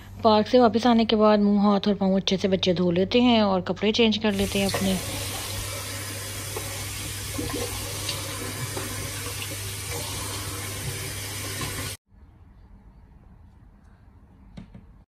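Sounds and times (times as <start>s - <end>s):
tap running into basin: 4.3s - 12.0s.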